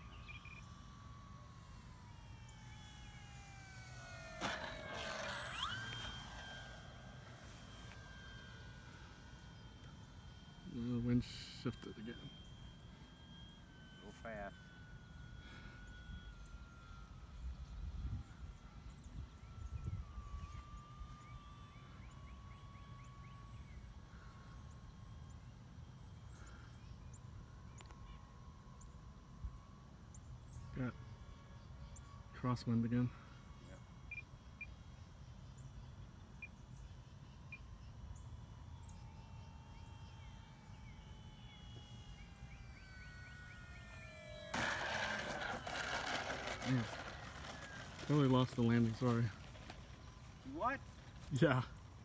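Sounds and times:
electric model plane whining: 0.0s - 52.0s
short burst of noise: 42.0s - 50.4s.

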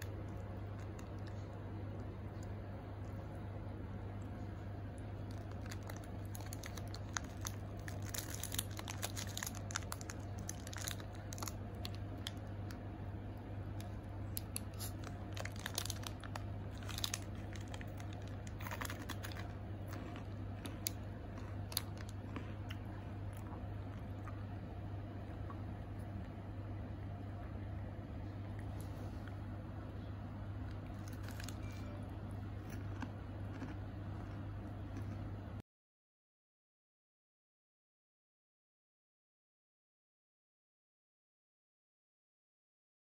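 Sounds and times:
steady low hum: 0.0s - 35.6s
snack wrapper crackling: 4.9s - 12.8s, 13.8s - 24.4s, 30.7s - 32.0s, 32.6s - 35.2s.

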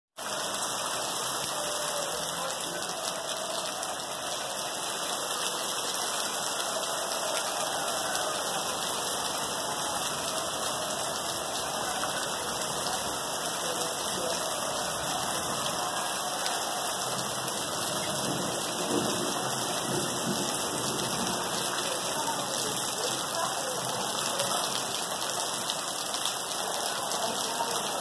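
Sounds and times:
heavy rain pouring: 0.2s - 28.0s.

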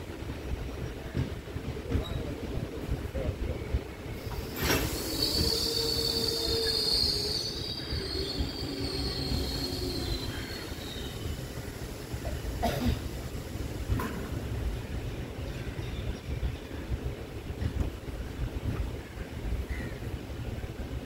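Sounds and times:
rumble of moving train: 0.0s - 21.0s
train wheels squealing: 4.2s - 12.2s.

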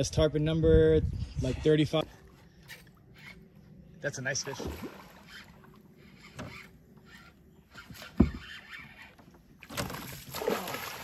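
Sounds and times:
low thump against canoe: 7.9s - 8.6s.

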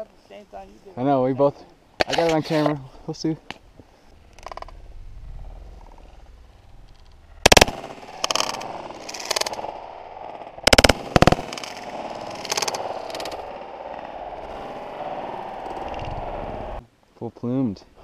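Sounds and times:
shotgun blasts: 7.4s - 9.6s, 10.6s - 11.7s.

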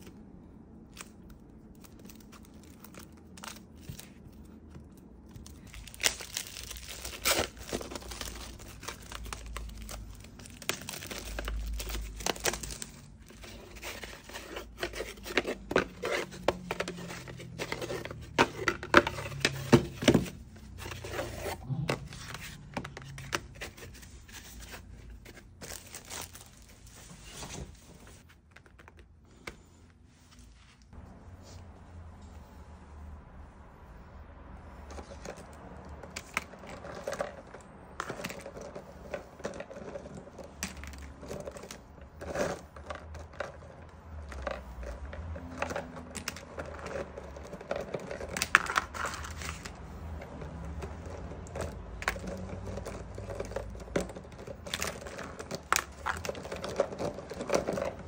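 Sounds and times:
plastic wrapping tearing and crumpling: 0.8s - 18.4s, 19.0s - 28.2s.

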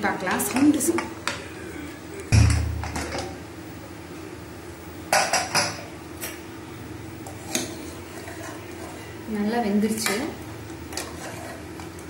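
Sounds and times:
heavy thump: 2.3s - 3.2s.

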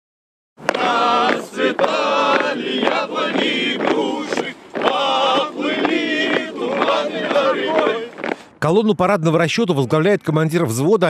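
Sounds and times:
group singing in chorus: 0.6s - 8.4s
sharp knocks: 0.7s - 8.4s.

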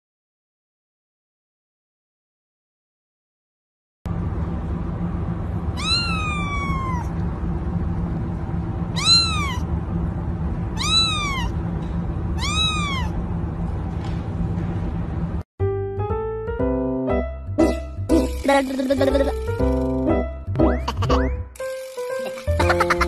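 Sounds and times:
low steady hum: 4.1s - 15.4s
kitten meowing: 5.8s - 7.1s, 8.9s - 9.7s, 10.8s - 11.6s, 12.4s - 13.2s.

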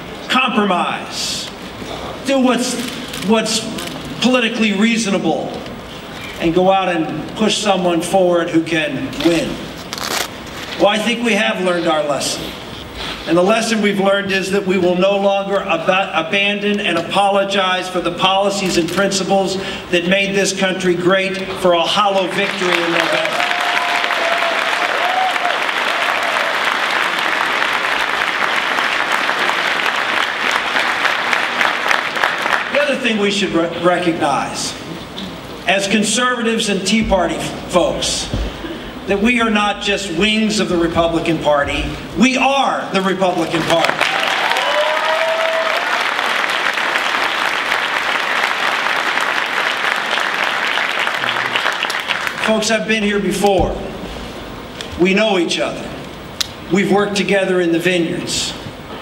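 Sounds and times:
audience applauding: 22.2s - 32.8s, 43.5s - 52.5s.

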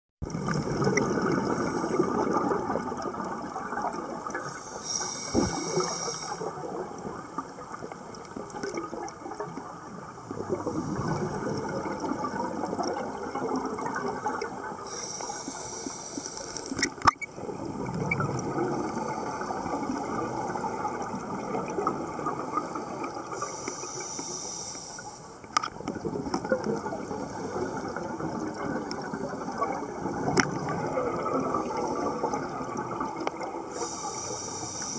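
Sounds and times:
bubbling exhaled air: 0.2s - 7.2s, 10.3s - 16.7s
watery background: 0.2s - 34.9s
hissing regulator inhalation: 4.4s - 6.5s, 14.9s - 16.8s, 23.0s - 25.3s, 33.7s - 34.9s.

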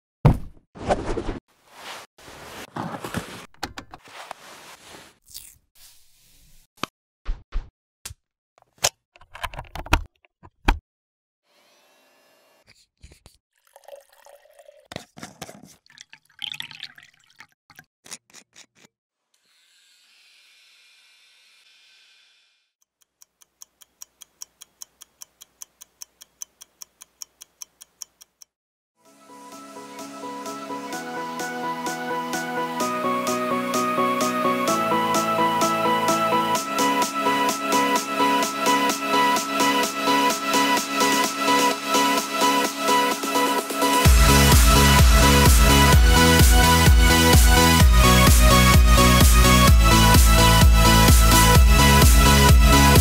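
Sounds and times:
packaging rustling and sliding: 1.6s - 5.2s.

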